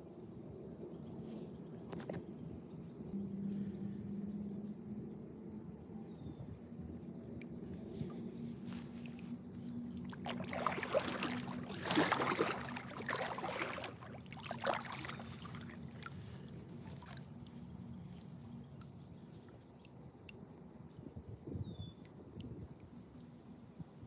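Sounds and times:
paddle strokes splashing water: 7.9 - 19.9.

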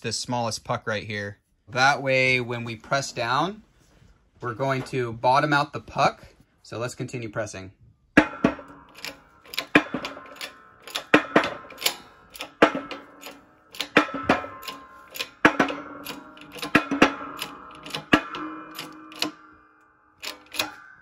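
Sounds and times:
shop press metallic clicks: 8.2 - 19.6, 20.2 - 21.0.

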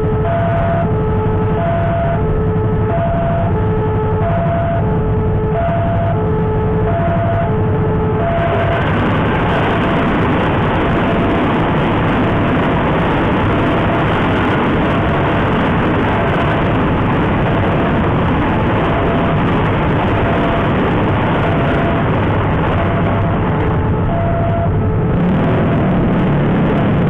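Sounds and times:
faint short warning tones: 24.1 - 24.9.

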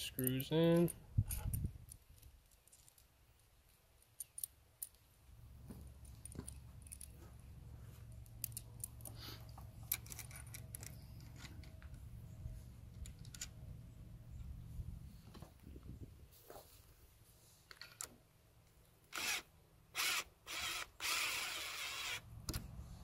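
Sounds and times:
screws and parts rattling: 0.0 - 5.1, 6.0 - 7.2, 9.8 - 11.9
low steady rumble: 9.6 - 16.3.

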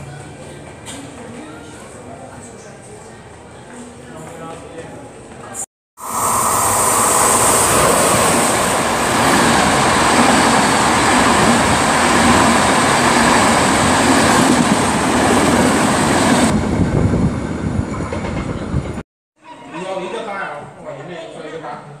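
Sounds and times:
high hiss: 6.0 - 9.1
train rumbling: 6.0 - 19.0.

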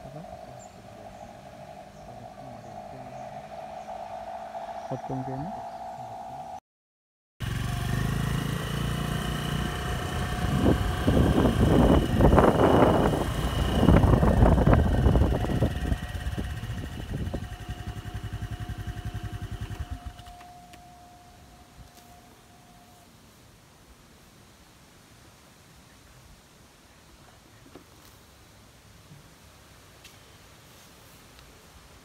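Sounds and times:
vehicle engine running: 7.4 - 21.2.

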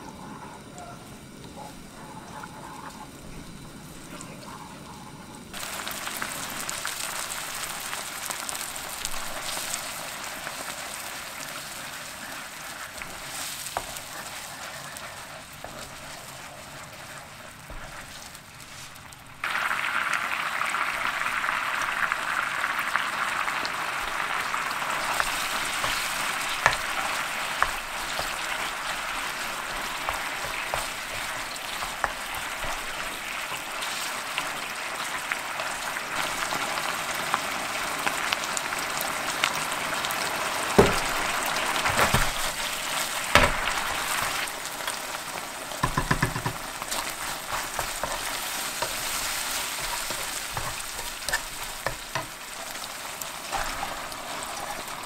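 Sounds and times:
sauce sizzling in a frying pan: 0.0 - 55.0
spatula tapping against pan: 45.8 - 46.7.

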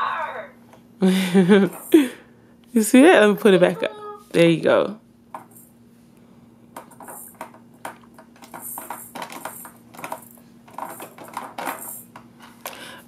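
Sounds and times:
plastic toy clicks and rattles: 8.4 - 12.0.

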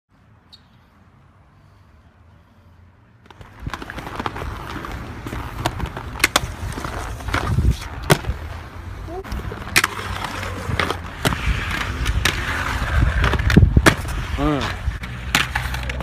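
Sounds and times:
skateboard wheels rolling on concrete: 0.1 - 16.0
skateboard clacks: 3.2 - 8.5, 9.2 - 16.0.

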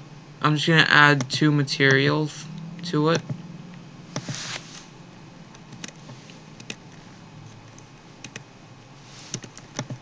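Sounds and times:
keyboard key presses: 5.7 - 6.8, 7.7 - 8.4, 9.3 - 10.0.

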